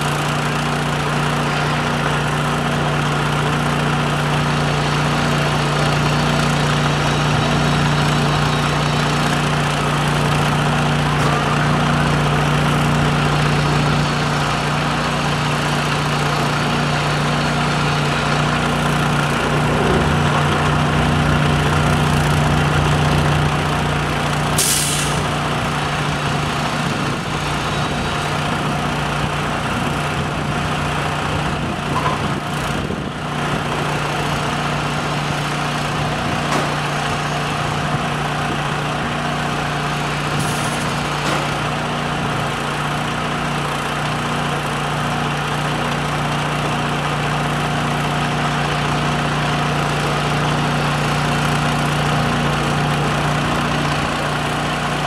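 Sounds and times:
engine running steadily: 0.0s - 55.0s
brief hisses: 24.6s - 25.2s.

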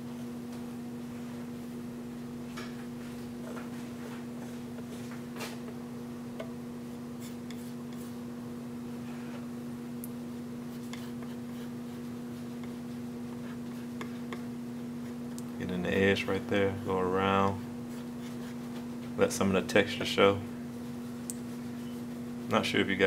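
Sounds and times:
steady electrical hum: 0.0s - 23.0s
palette knife scraping paint: 10.7s - 12.8s.

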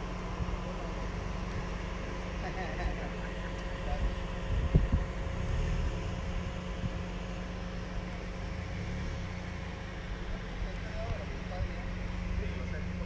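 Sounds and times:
wind buffeting microphone: 4.0s - 5.4s.

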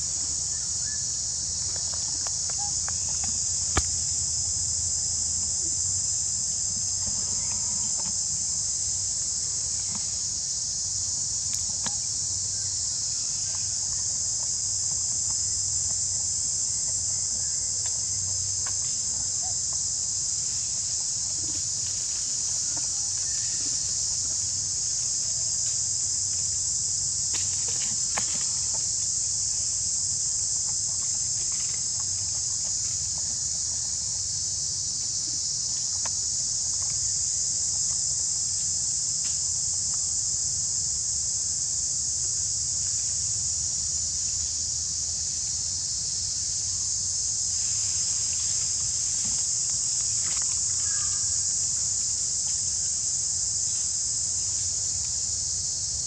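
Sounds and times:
insect chorus drone: 0.0s - 56.0s.

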